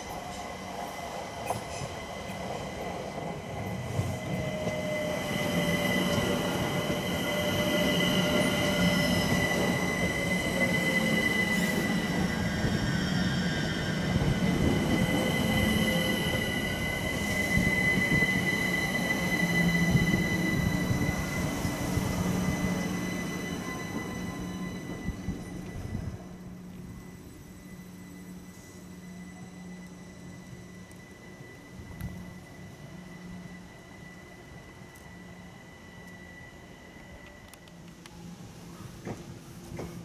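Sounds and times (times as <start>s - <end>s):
train wheels rumbling: 0.0s - 40.0s
high-pitched wheel squeal: 4.5s - 26.0s.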